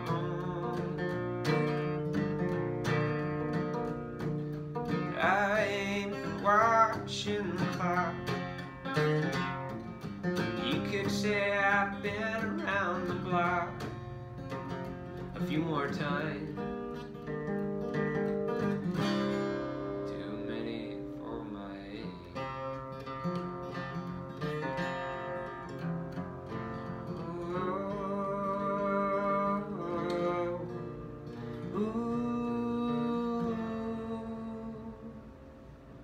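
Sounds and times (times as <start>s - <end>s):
acoustic guitar strummed and picked: 0.0s - 36.0s
man singing long notes: 27.1s - 30.9s, 31.6s - 35.3s.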